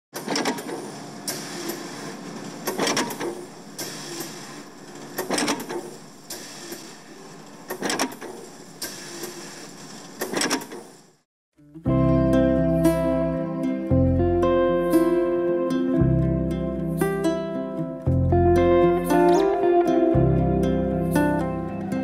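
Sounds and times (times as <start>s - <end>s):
mechanical whooshes and clunks: 0.2s - 11.2s.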